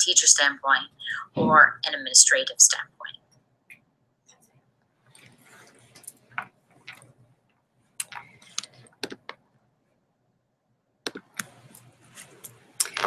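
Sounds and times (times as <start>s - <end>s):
laptop keys and trackpad clicking: 8.0s - 9.4s, 11.1s - 13.0s.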